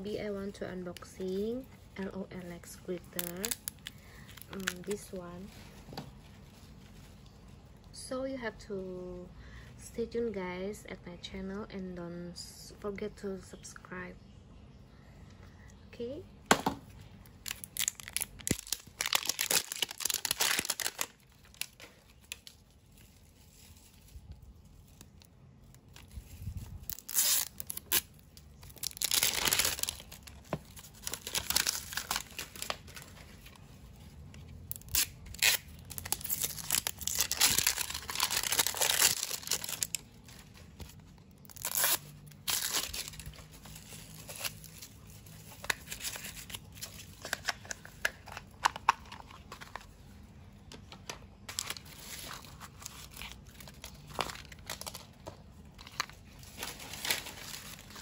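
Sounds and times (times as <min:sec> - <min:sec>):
packaging being torn and crinkled: 0:02.7 - 0:05.6, 0:17.2 - 0:50.0, 0:51.0 - 0:58.0.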